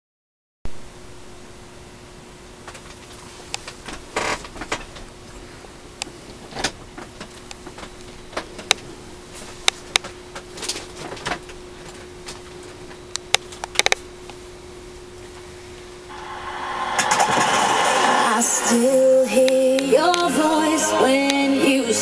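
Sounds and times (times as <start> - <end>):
faint steady hum: 0.7 - 22.0
scattered clicks: 13.1 - 14.4.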